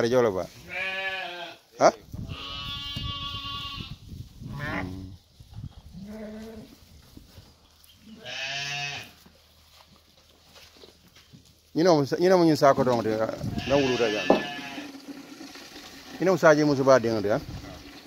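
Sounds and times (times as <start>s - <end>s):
sheep bleating: 0.6s - 1.7s, 2.3s - 5.0s, 8.1s - 9.2s, 13.4s - 14.9s.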